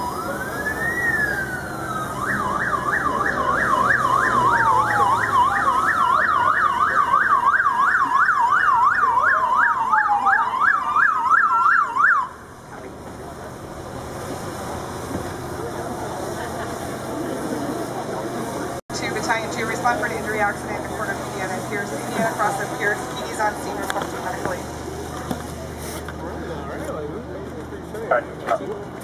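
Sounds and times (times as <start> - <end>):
siren fast yelp: 0.0 - 12.5
siren rising and falling wail: 0.0 - 12.5.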